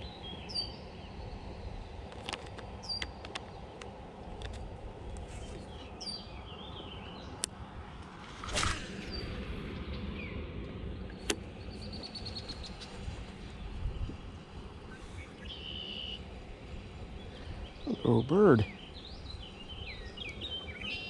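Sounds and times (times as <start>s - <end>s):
small birds chirping: 0.0s - 4.0s, 5.0s - 7.6s, 11.0s - 21.0s
steady low rumble: 0.0s - 20.8s
bird trill: 15.4s - 16.2s.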